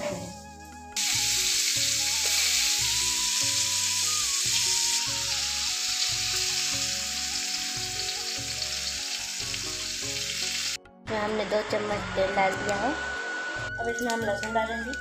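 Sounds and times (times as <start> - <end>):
hot oil sizzling: 0.2 - 10.8.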